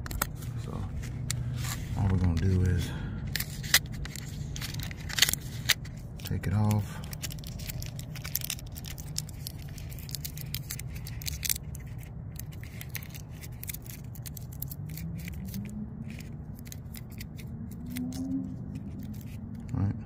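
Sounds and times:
tape and paper crackling: 0.0s - 19.9s
steady low hum: 0.0s - 20.0s
low tone rising in pitch: 14.6s - 16.6s, 17.4s - 19.7s.

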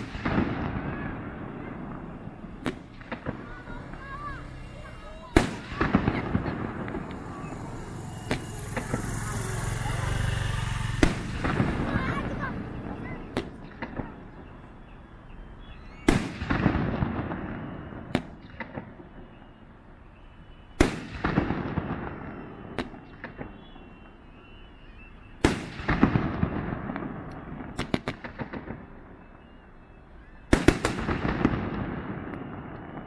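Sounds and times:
firework shell booms: 0.0s - 14.6s, 16.0s - 19.4s, 20.7s - 24.0s, 25.4s - 29.0s.

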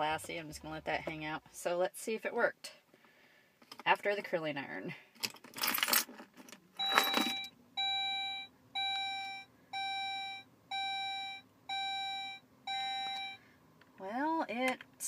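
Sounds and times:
dashboard warning chime beeping: 6.8s - 13.4s.

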